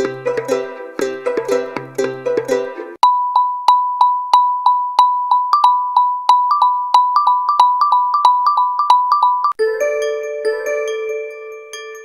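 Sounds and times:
marimba-like ringtone: 3.0s - 12.0s.

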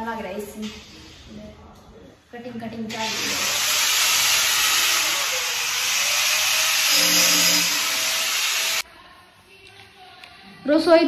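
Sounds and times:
loud steady hiss: 2.9s - 8.8s.

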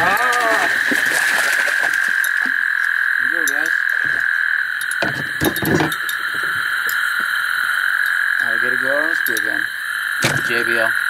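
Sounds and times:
deep frog croaking: 0.0s - 11.0s
frogs chorus: 0.0s - 11.0s
sharp knocks: 10.2s - 10.7s.

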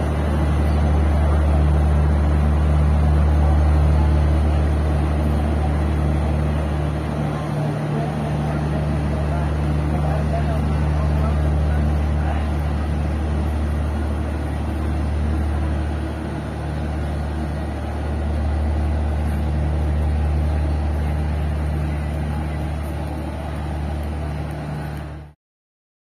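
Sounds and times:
train generator hum: 0.0s - 25.4s.

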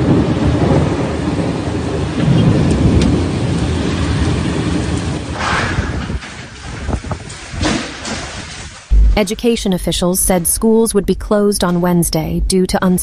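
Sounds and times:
heavy rain: 0.0s - 9.1s
strong wind: 0.0s - 9.2s
thunder rumbling: 0.0s - 13.0s.

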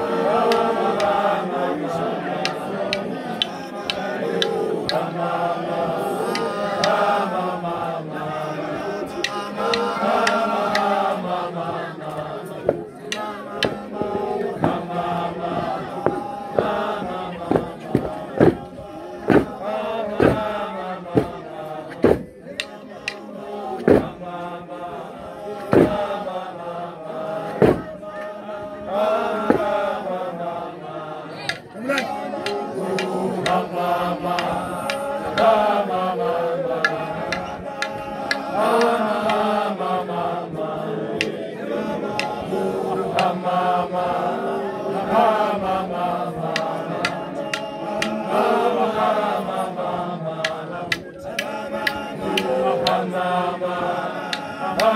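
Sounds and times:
group of voices chanting: 0.0s - 54.9s
sharp percussive beats: 12.6s - 14.9s, 15.5s - 19.6s, 20.2s - 24.2s, 25.6s - 26.1s, 27.5s - 28.0s.

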